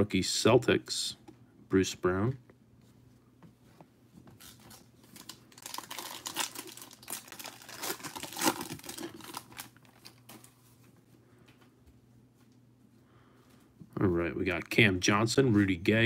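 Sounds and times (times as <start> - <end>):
foil wrapper tearing and crinkling: 4.4 - 10.5.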